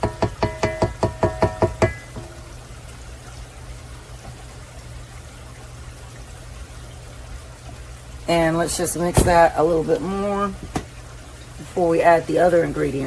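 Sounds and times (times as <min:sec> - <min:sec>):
spatula knocking on metal bowl: 0:00.0 - 0:02.3.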